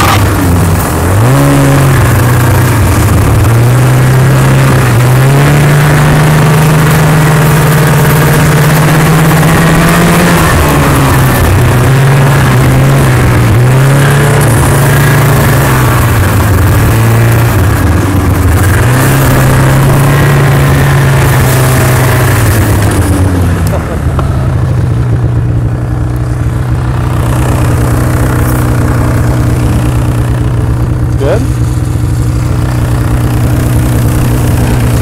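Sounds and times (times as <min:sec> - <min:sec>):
snowmobile engine revving: 0:00.0 - 0:35.0.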